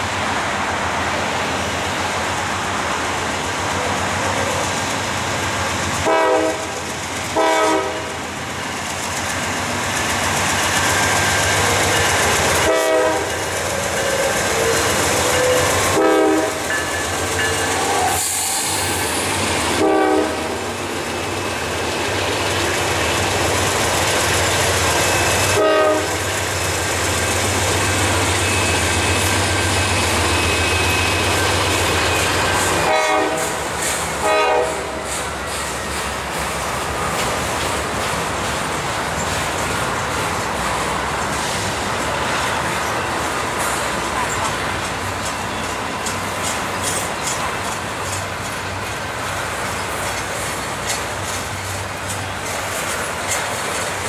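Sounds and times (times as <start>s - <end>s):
diesel locomotives droning: 0.0s - 54.0s
train wheels clicking on rails: 0.0s - 54.0s
short train horn blasts: 6.0s - 6.8s, 7.4s - 8.2s, 12.6s - 13.3s, 15.3s - 16.7s, 19.7s - 20.6s, 25.3s - 26.3s, 32.8s - 33.6s, 34.2s - 35.1s.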